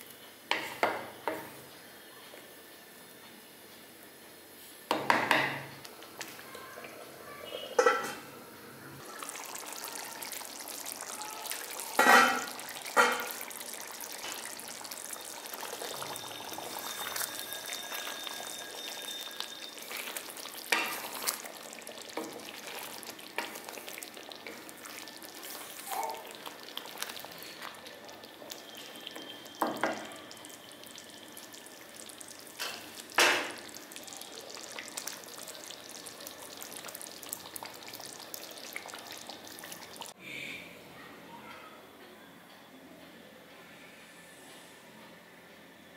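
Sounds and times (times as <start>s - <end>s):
curry sizzling in a pan: 4.5s - 40.2s
spatula stirring and scraping: 16.0s - 27.8s.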